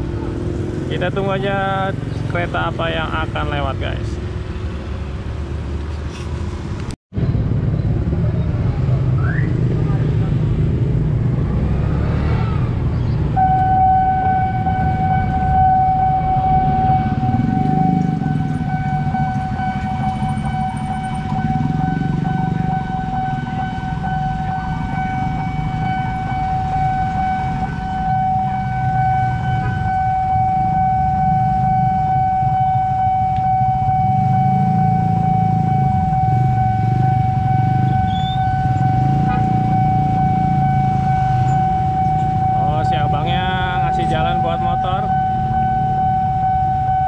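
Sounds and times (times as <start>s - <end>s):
motorbike and car engines rumbling: 0.0s - 47.0s
level crossing alarm high tone: 13.4s - 47.0s.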